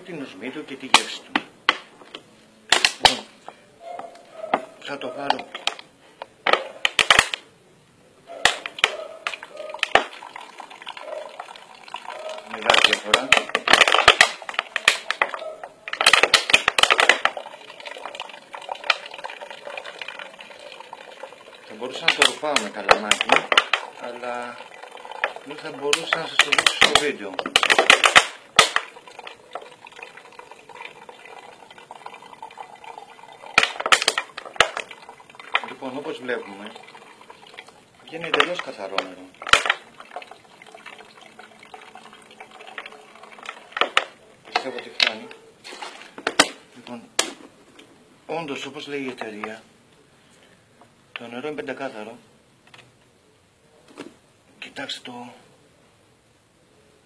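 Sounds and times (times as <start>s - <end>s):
plastic crackling: 5.3s - 7.5s, 8.4s - 47.9s
water trickling into bottle: 8.6s - 45.9s.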